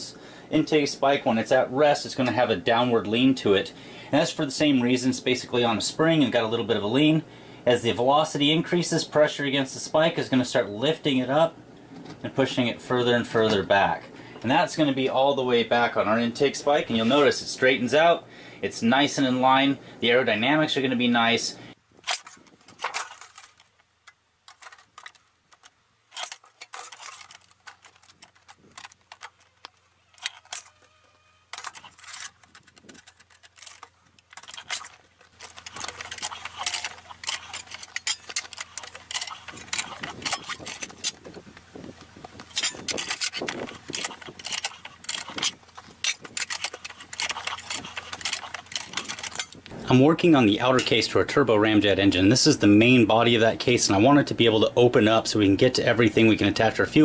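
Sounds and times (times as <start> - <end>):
metal sheet clicks and clanks: 22.0 - 30.7, 31.5 - 41.4, 42.3 - 49.7
slip rolls clicking rattle: 22.0 - 30.8, 31.5 - 49.7.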